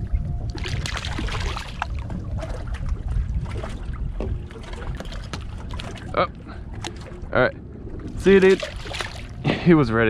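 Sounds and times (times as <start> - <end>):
low steady rumble: 0.0 - 10.0
water slapping and dripping: 0.5 - 9.4.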